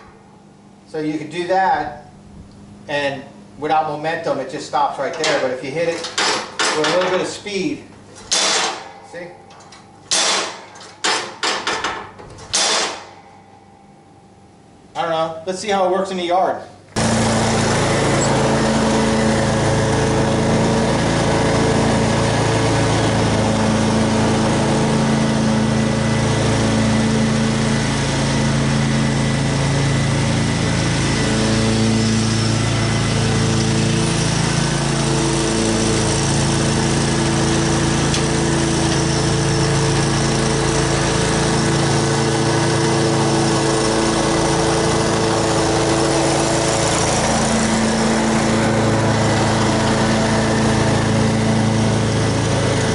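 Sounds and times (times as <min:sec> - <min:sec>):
lawn mower cutting grass: 0:05.2 - 0:09.0, 0:10.0 - 0:11.4, 0:12.4 - 0:13.1, 0:17.0 - 0:52.9.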